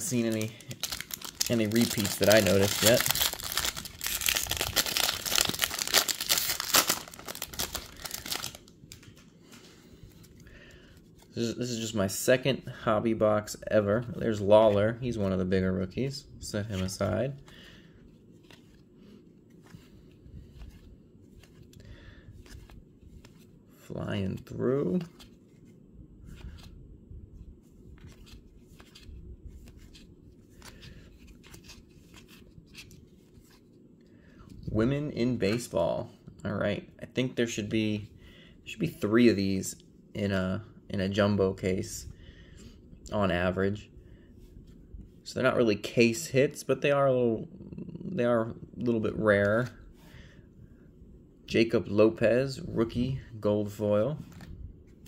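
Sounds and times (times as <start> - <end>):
trading cards flipping: 0.0 - 9.3, 54.2 - 54.5
foil wrapper tearing and crinkling: 0.3 - 8.6.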